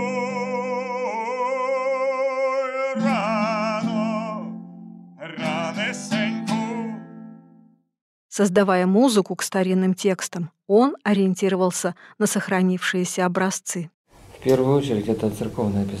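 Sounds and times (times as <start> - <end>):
man singing: 0.0 - 4.6, 5.2 - 7.2
plucked string instrument: 3.0 - 7.7.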